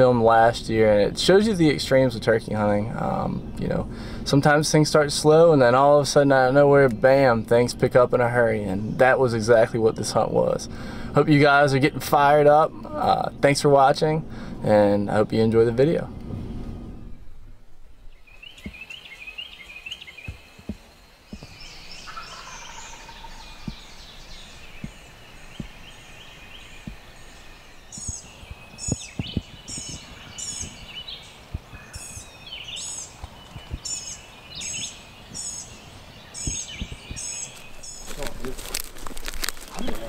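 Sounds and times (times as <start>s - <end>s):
turkeys gobbling: 22.0s - 24.0s.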